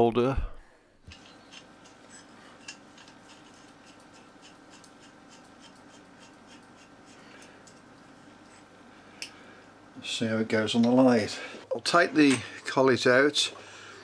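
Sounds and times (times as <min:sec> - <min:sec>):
faint hum: 0:00.0 - 0:14.0
metal ticking and scraping: 0:01.1 - 0:07.8.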